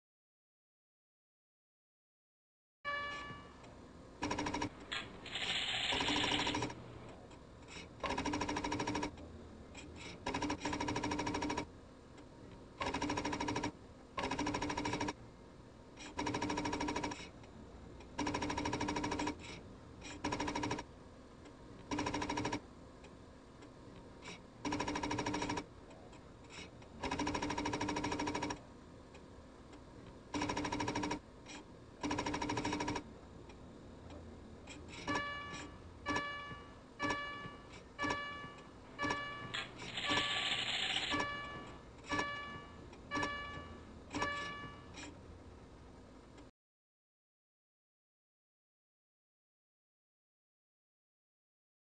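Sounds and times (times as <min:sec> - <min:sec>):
typewriter-like electronic chatter: 0:04.2 - 0:06.9, 0:07.7 - 0:09.2, 0:09.8 - 0:11.7, 0:12.8 - 0:15.2, 0:16.0 - 0:17.3, 0:18.2 - 0:20.9, 0:21.9 - 0:22.6, 0:24.2 - 0:25.7, 0:26.5 - 0:28.6, 0:30.3 - 0:33.0, 0:34.7 - 0:45.2
short electronic beeps: 0:35.0 - 0:45.0.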